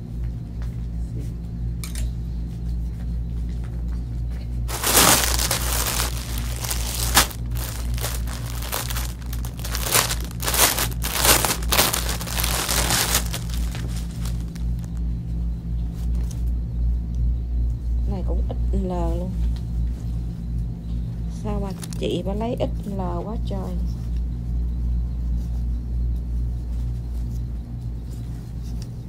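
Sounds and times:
steady low hum: 0:00.0 - 0:29.0
plastic bags crinkling: 0:04.7 - 0:15.0, 0:21.7 - 0:22.0.

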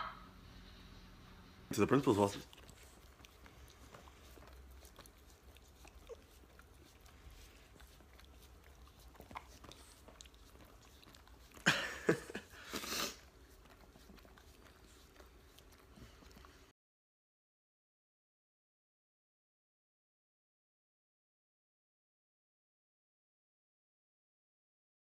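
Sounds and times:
breathy licking flurry: 0:01.7 - 0:16.7
dog licking: 0:01.7 - 0:16.7.

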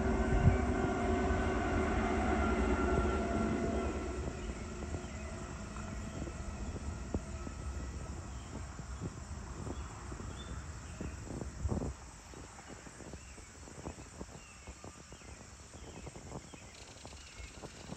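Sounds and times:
faint insect chirping: 0:04.3 - 0:17.9.

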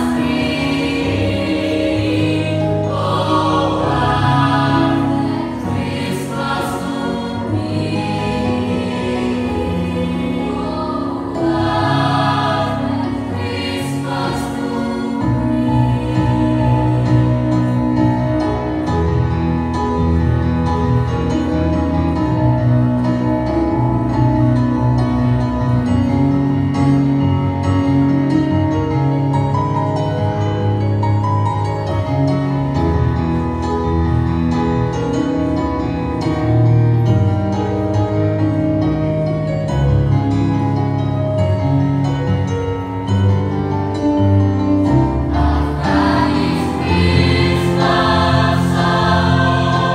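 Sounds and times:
mixed choir singing in harmony: 0:00.0 - 0:20.1, 0:44.8 - 0:49.9.

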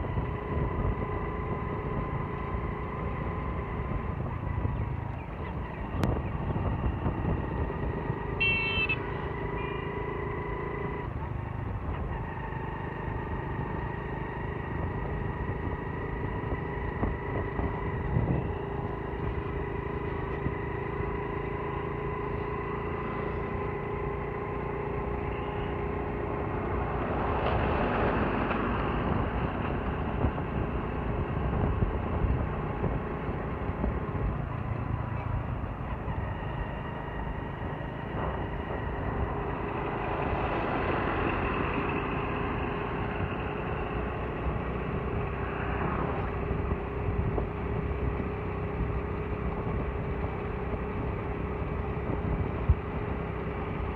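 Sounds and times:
motorcycle engine running: 0:00.0 - 0:53.9
rushing road noise: 0:00.0 - 0:53.9
horn beep: 0:08.4 - 0:10.0.

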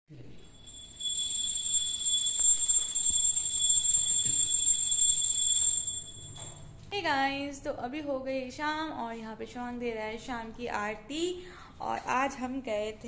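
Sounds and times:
hand bell ringing rapidly: 0:00.5 - 0:06.6.

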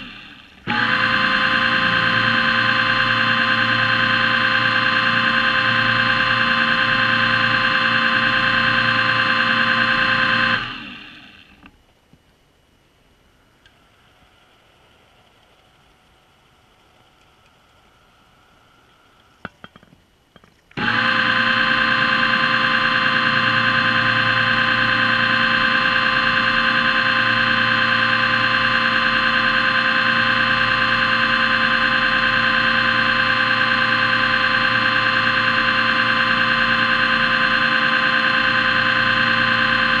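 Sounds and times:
electric motor whining and humming: 0:00.0 - 0:11.7, 0:20.8 - 0:40.0.

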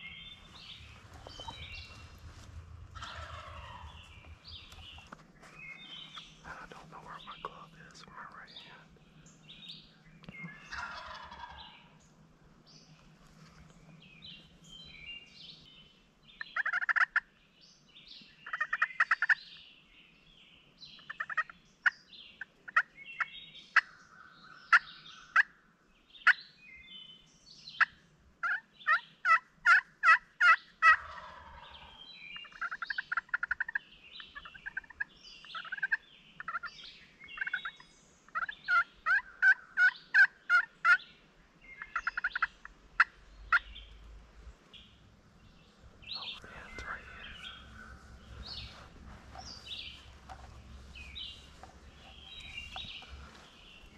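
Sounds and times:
songbirds chirping: 0:00.0 - 0:53.9
turkey gobbling: 0:00.4 - 0:05.1, 0:10.5 - 0:11.9, 0:16.6 - 0:17.2, 0:18.4 - 0:19.4, 0:21.0 - 0:21.5, 0:27.8 - 0:36.7, 0:37.4 - 0:41.1, 0:41.8 - 0:44.0, 0:46.1 - 0:53.9
turkey yelps: 0:03.0 - 0:03.9, 0:10.7 - 0:11.6, 0:28.4 - 0:33.8, 0:37.4 - 0:41.0.

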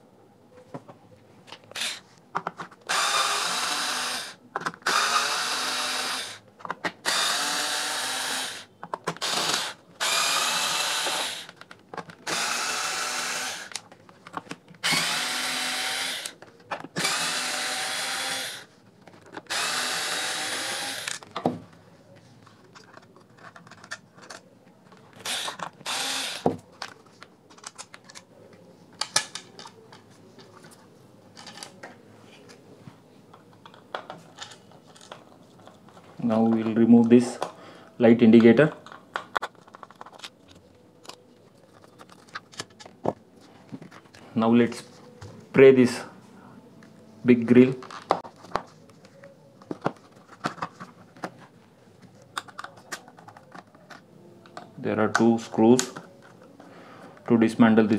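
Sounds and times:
electric screwdriver whining: 0:01.7 - 0:02.0, 0:02.9 - 0:06.4, 0:07.0 - 0:11.6, 0:12.2 - 0:13.8, 0:14.8 - 0:16.4, 0:17.0 - 0:18.7, 0:19.5 - 0:21.2, 0:25.2 - 0:26.5
plastic and screws handled: 0:10.9 - 0:12.6, 0:21.0 - 0:28.3, 0:33.6 - 0:36.7, 0:38.8 - 0:44.2, 0:47.8 - 0:56.6.

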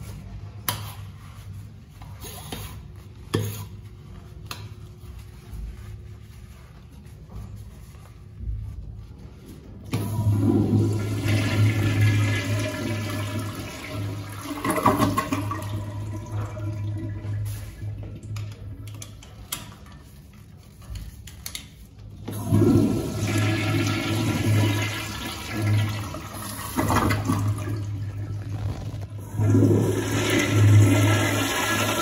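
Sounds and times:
toilet flushing: 0:09.9 - 0:18.8, 0:22.2 - 0:32.0.

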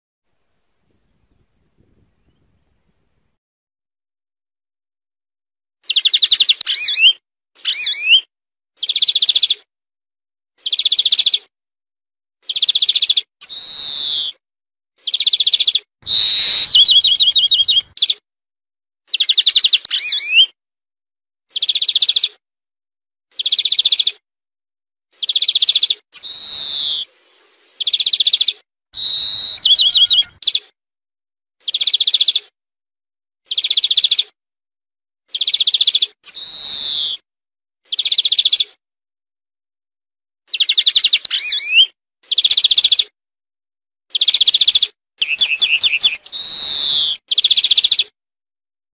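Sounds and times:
small songbird trilling: 0:15.1 - 0:18.2, 0:27.8 - 0:30.6, 0:44.2 - 0:48.0.

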